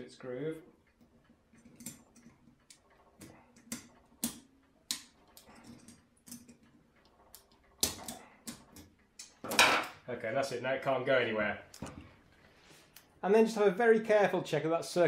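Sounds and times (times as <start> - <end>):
metallic clicks and scrapes: 0.8 - 9.5.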